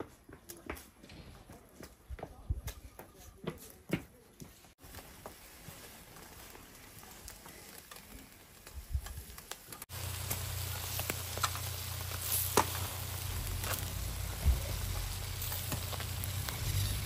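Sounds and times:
skewers sizzling over charcoal: 4.7s - 17.0s
grill crackles: 4.8s - 17.0s.

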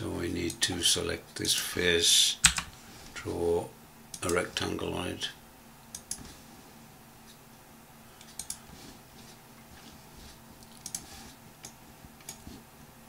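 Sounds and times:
faint steady hum: 0.0s - 13.0s
computer mouse clicks: 2.4s - 2.7s, 5.9s - 6.2s, 8.2s - 8.6s, 10.6s - 12.4s
keyboard keys clicking: 2.4s - 2.7s.

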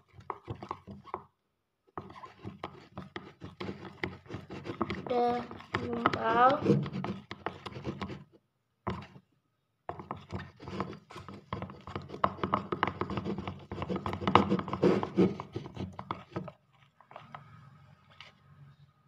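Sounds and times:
stick scraping slime in glass bowl: 0.0s - 1.3s, 2.0s - 8.3s, 9.9s - 17.5s.

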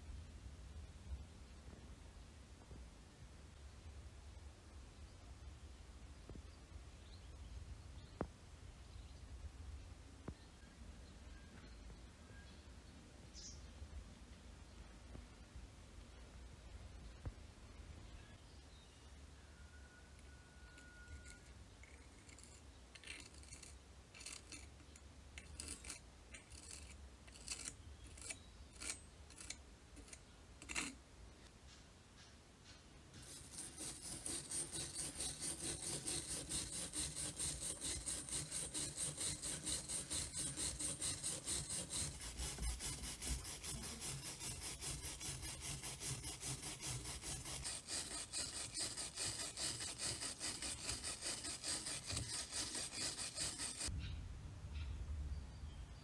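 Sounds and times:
metal pick scratching and clicking: 20.2s - 31.0s, 33.2s - 53.9s
wire brush scrubbing metal: 20.7s - 31.0s, 33.2s - 53.9s.

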